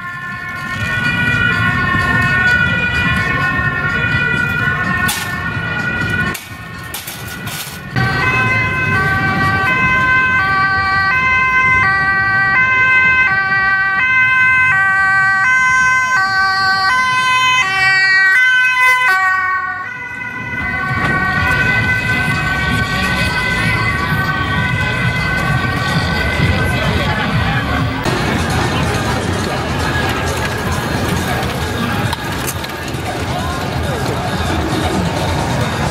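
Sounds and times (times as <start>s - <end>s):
traffic and crowd rumble: 0.0s - 35.9s
two-tone ambulance siren: 0.0s - 35.9s.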